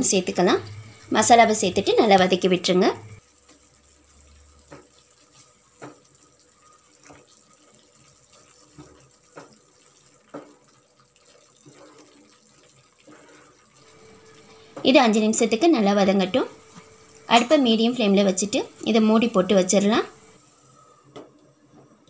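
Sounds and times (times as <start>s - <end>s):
gravy sizzling: 0.0s - 22.0s.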